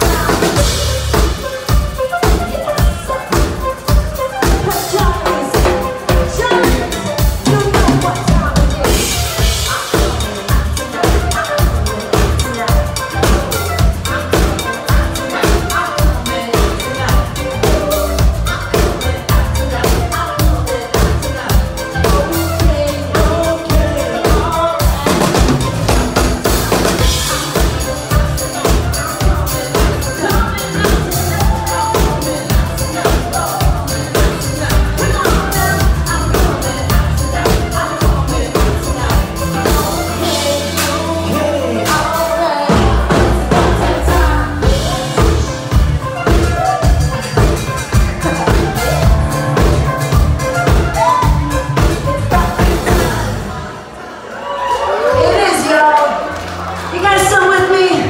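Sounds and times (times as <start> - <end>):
woman singing: 0.0 - 53.9
live rock band playing: 0.0 - 58.0.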